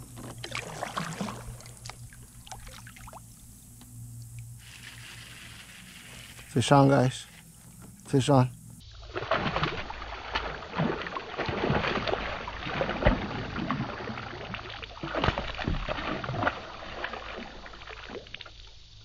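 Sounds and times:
fish splashing at water surface: 0.0 - 3.3, 4.6 - 6.6, 9.0 - 18.6.

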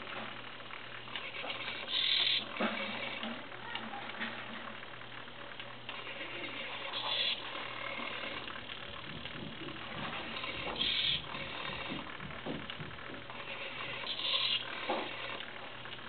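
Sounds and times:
servo motors whirring: 9.8 - 12.0, 13.3 - 15.5.

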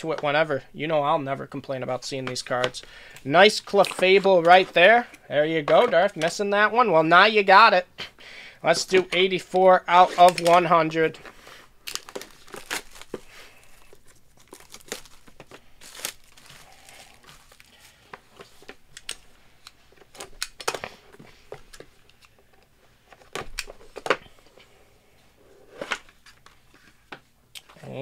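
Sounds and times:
plastic wrap crinkling and tearing: 11.8 - 19.3.

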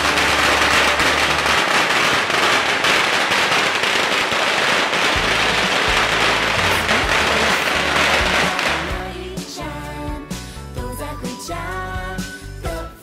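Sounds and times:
firecrackers crackling: 0.0 - 9.5.

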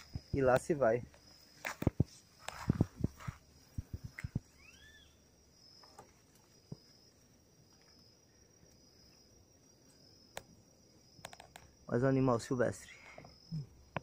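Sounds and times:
insects trilling: 0.0 - 14.0
bird whistling: 4.5 - 5.2.

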